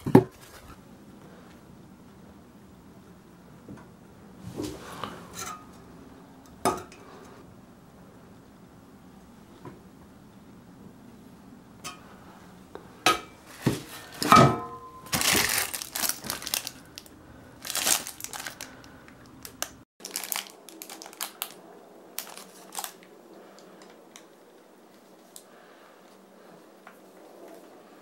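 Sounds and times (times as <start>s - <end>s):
plastic bag crinkling: 15.0s - 23.1s
plastic packaging crinkling: 15.0s - 23.1s.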